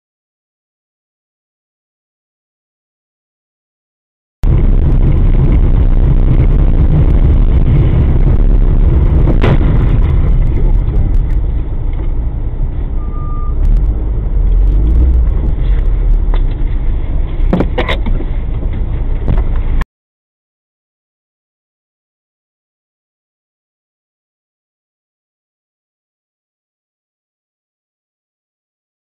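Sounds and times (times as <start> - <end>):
car road and engine rumble: 4.4 - 19.8
short beep: 12.9 - 13.8.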